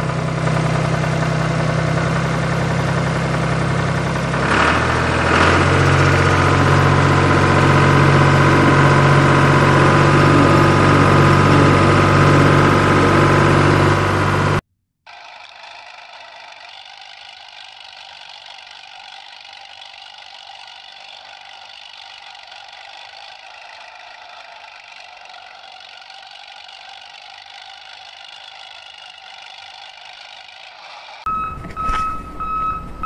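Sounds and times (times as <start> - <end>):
toy electric motor whirring: 15.1 - 31.3
ringing tone: 31.3 - 33.0.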